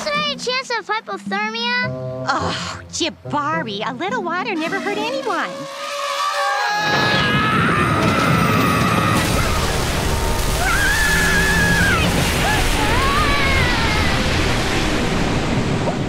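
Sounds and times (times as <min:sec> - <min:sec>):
splashing churning water: 0:04.6 - 0:16.0.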